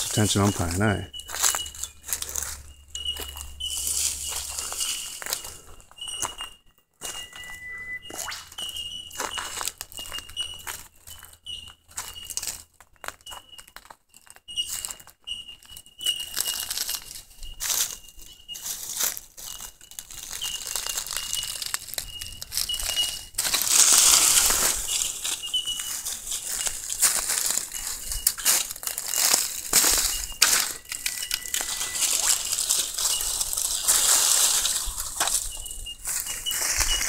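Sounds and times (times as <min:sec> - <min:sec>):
dry leaves crackling and rustling: 0:00.0 - 0:06.3, 0:09.2 - 0:12.7, 0:16.2 - 0:37.0
short high chirp: 0:06.0 - 0:10.6, 0:29.8 - 0:33.4.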